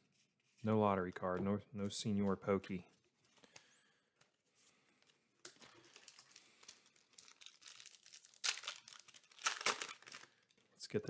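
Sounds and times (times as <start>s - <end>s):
foil wrapper crinkling: 5.4s - 10.7s.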